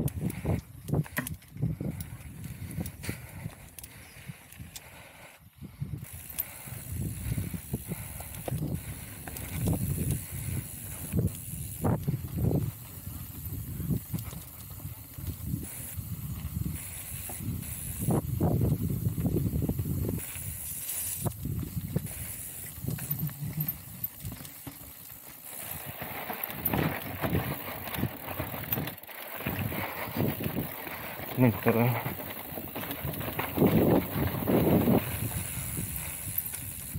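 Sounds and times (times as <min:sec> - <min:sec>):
mountain bike rumbling on trail: 0:00.0 - 0:36.9
bike knocks and rattles: 0:22.8 - 0:35.0.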